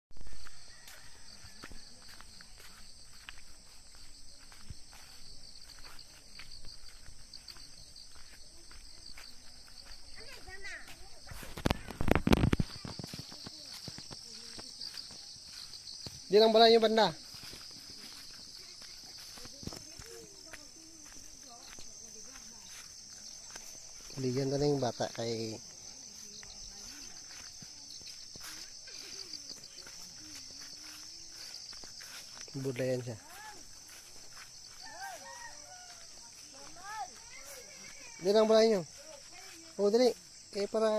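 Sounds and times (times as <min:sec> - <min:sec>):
footsteps on grass: 0:00.1 - 0:40.9
insects chirping: 0:00.1 - 0:40.9.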